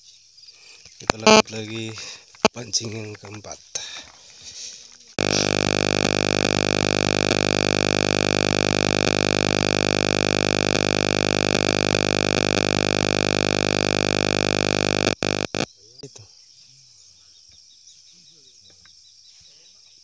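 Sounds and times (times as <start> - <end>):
loud steady electronic drone: 5.2 - 15.7.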